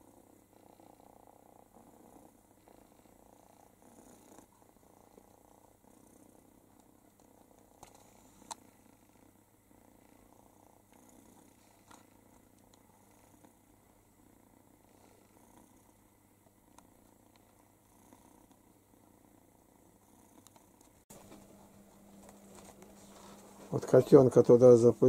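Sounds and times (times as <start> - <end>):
cat purring: 0.0 - 25.0.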